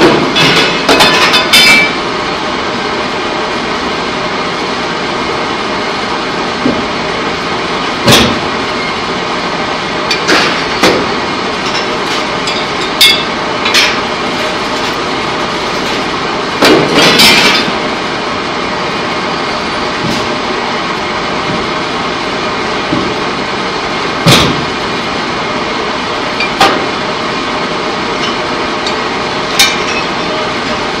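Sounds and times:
sharp metal clanks and knocks: 0.0s - 2.0s, 10.1s - 15.0s, 16.6s - 17.8s, 28.2s - 30.4s
factory machinery running: 0.0s - 31.0s.

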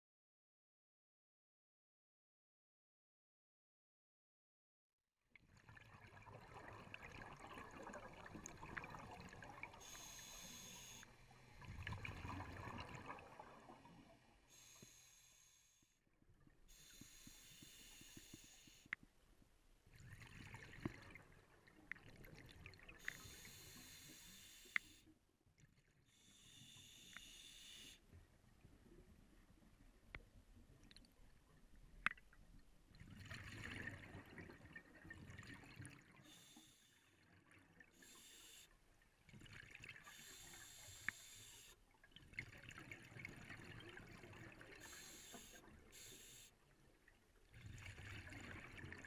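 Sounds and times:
hissing regulator inhalation: 9.8s - 11.1s, 14.5s - 15.9s, 16.7s - 18.9s, 23.0s - 25.1s, 26.1s - 28.0s, 36.2s - 37.0s, 38.0s - 38.8s, 40.1s - 41.8s, 44.8s - 46.6s.

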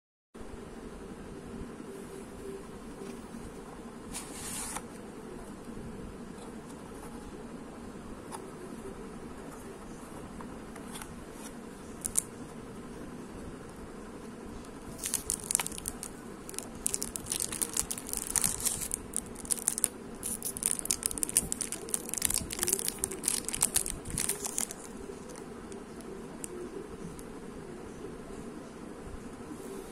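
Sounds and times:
plastic wrapper crinkling: 12.0s - 12.3s, 15.0s - 25.4s.

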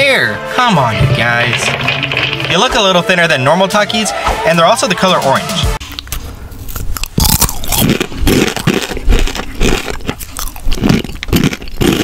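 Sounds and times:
crunching and chewing chips: 5.8s - 12.0s.

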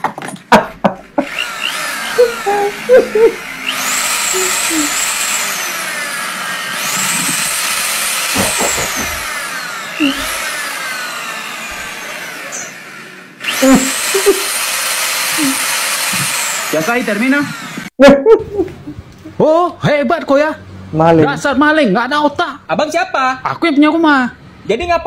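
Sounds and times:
electric drill motor whine: 1.2s - 17.9s.

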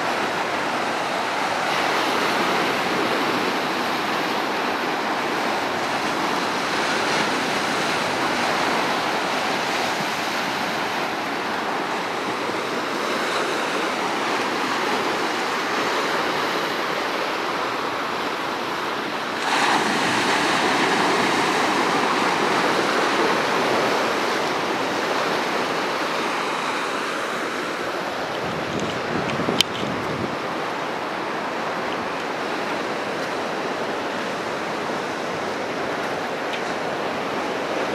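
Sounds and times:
surf breaking over rocks: 19.0s - 37.9s.

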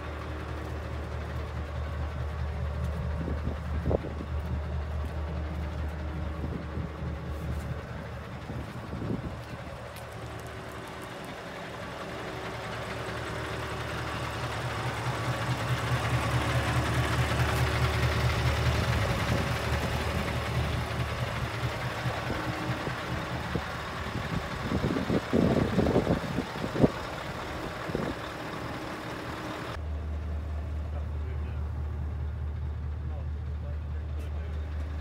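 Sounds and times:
diesel engine idling: 0.0s - 35.0s.

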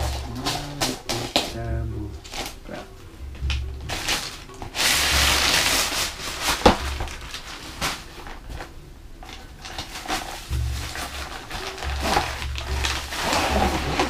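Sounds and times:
plastic bag crinkling: 0.0s - 14.0s
cardboard box rustling and tapping: 3.2s - 14.0s.

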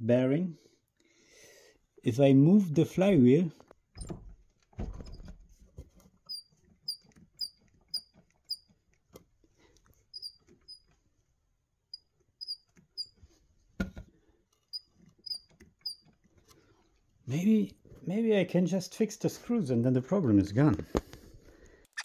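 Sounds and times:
flywheel bearing squeaks: 6.3s - 8.8s, 10.1s - 10.9s, 11.9s - 13.2s, 14.7s - 16.2s.

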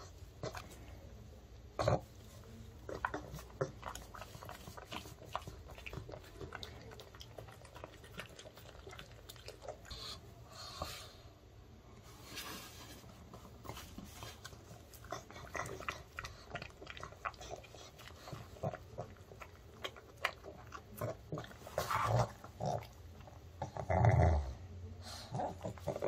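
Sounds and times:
dog eating and licking: 1.8s - 10.8s, 13.4s - 23.8s
wet smacks and chewing clicks: 2.9s - 10.0s, 14.8s - 21.7s.

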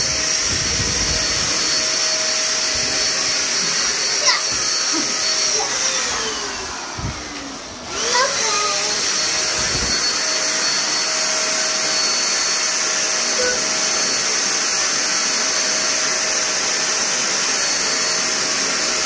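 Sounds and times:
handheld vacuum cleaner running: 0.0s - 19.0s.

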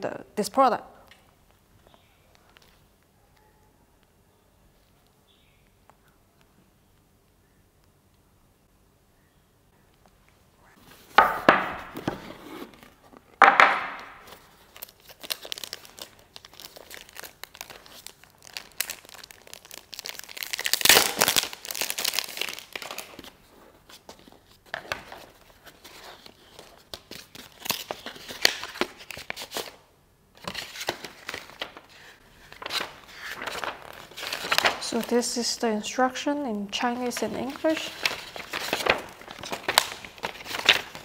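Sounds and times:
packaging crinkling and rustling: 10.9s - 29.8s, 30.4s - 35.6s, 36.7s - 41.0s.

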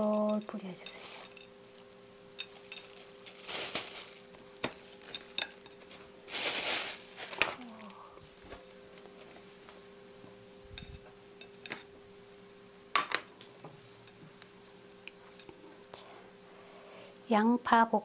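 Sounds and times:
plastic bag rustling: 0.0s - 8.6s.

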